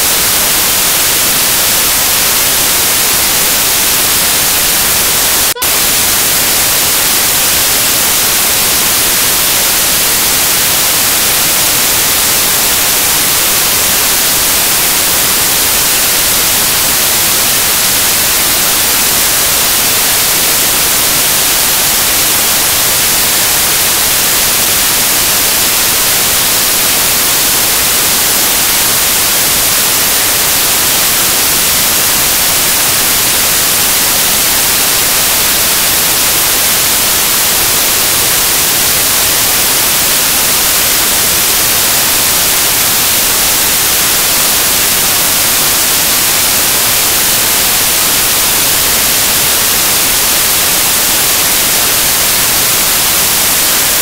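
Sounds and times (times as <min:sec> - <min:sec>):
static hiss: 0:00.0 - 0:54.0.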